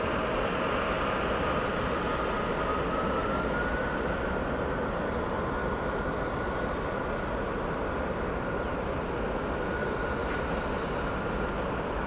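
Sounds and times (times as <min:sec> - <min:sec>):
distant mechanical drone: 0:00.0 - 0:12.0.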